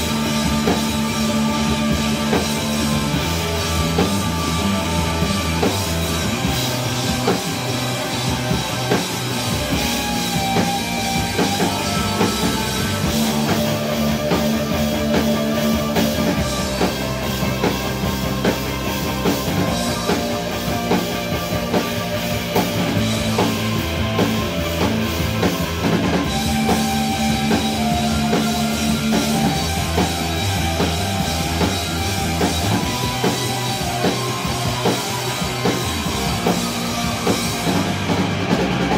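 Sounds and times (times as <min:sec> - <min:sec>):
drum kit: 0:00.0 - 0:38.9
electric guitars: 0:00.0 - 0:38.9.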